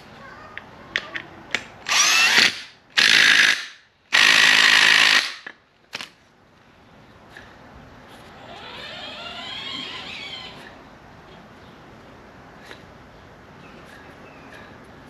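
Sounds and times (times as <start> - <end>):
cordless drill bursts: 1.9 - 5.5.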